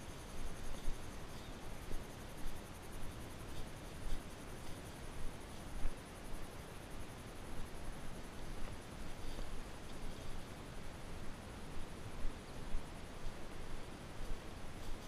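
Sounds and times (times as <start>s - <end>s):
rustling through tall grass: 0.0s - 15.0s
steady hiss: 0.0s - 15.0s.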